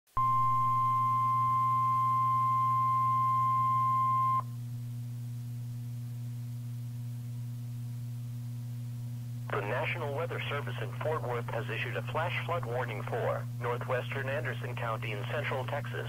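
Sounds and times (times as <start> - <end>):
high warning alarm beep: 0.2 - 4.4
low radio hum: 0.2 - 16.0.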